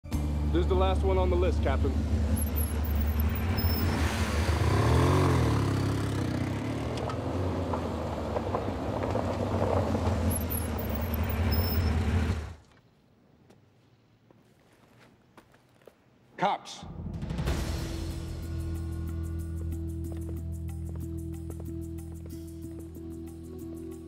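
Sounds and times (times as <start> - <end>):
motorcycle engines running: 0.1 - 12.6.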